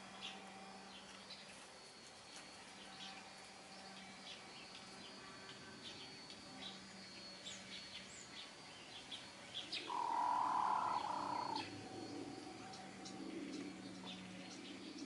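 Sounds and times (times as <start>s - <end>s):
small birds chirping: 3.8s - 15.0s
chicken calling: 9.8s - 11.6s.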